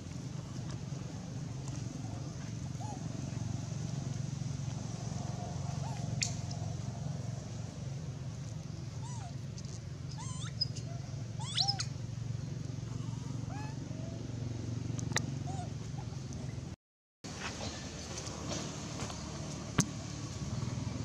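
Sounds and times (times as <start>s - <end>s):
low background hum: 0.0s - 21.0s
monkeys squeaking and calling: 2.8s - 3.1s, 5.7s - 6.5s, 9.0s - 9.4s, 10.0s - 12.0s, 13.4s - 14.2s, 15.2s - 16.2s.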